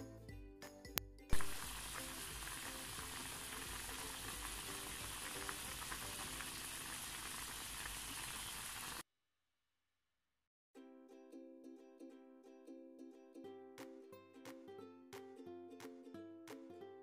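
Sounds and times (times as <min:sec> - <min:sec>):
pot boiling with bubbling hiss: 0:01.3 - 0:09.0.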